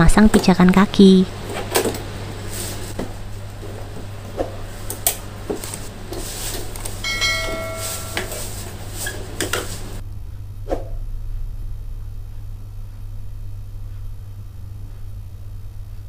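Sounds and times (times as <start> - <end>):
brief ringing tone: 7.0 - 8.6.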